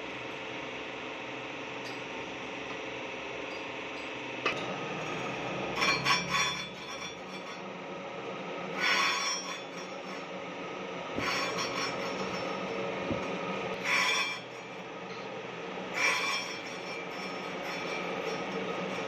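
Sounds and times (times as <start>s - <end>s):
grinding machine humming: 0.0s - 19.0s
grinding wheel rasping on metal: 5.0s - 7.7s, 8.7s - 10.3s, 11.1s - 15.2s, 15.9s - 19.0s.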